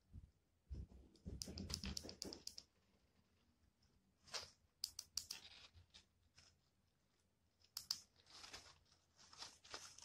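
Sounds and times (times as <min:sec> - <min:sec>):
crinkly rustles: 0:05.4 - 0:07.3, 0:08.0 - 0:10.0.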